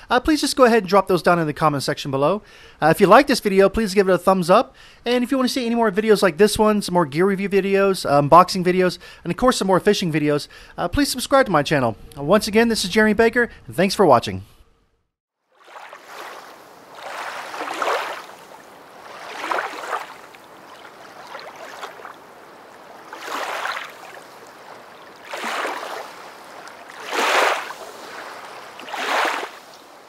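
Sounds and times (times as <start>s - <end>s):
water sloshing in swells: 15.4s - 30.0s.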